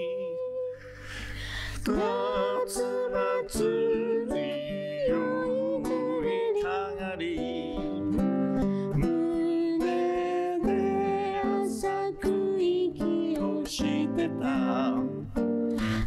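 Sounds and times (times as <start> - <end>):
strummed acoustic guitar: 0.8 - 16.0
man singing slow song: 1.8 - 5.2, 5.9 - 11.2, 13.0 - 16.0.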